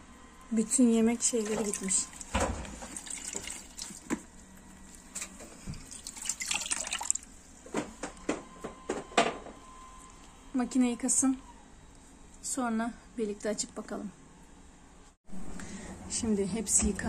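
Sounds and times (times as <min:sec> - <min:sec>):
water splashing and sloshing: 0:01.2 - 0:07.4.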